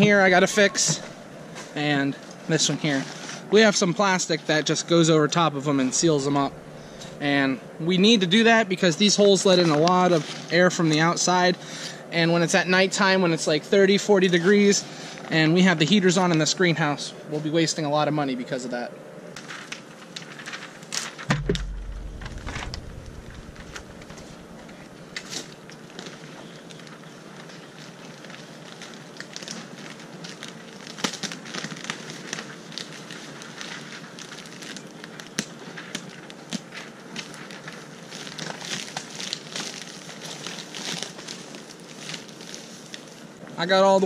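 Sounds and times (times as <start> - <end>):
plastic film crinkling: 19.4 - 43.4
low thump: 21.3 - 24.8.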